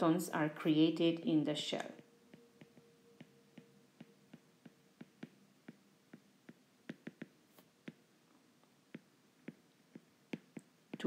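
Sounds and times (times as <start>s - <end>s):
stylus tapping on tablet screen: 1.8s - 11.0s.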